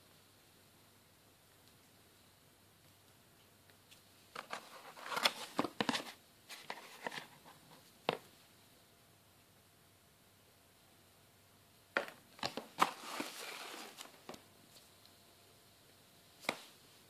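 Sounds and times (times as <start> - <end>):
cardboard box rustling: 4.4 - 7.4, 12.4 - 14.4.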